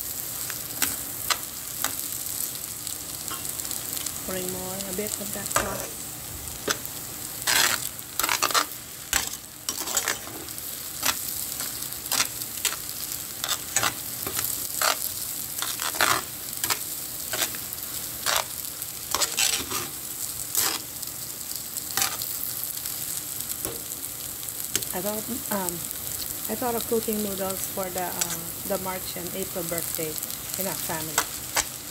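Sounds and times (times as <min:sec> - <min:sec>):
noodles sizzling in a pot: 0:00.0 - 0:31.9
tongs scraping a metal basket: 0:07.5 - 0:12.8, 0:18.2 - 0:20.8.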